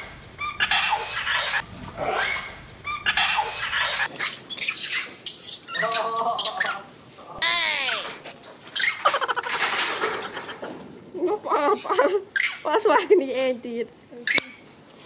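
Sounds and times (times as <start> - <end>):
monkeys screeching and squealing: 0.4 - 6.9, 7.8 - 9.9, 11.7 - 12.8.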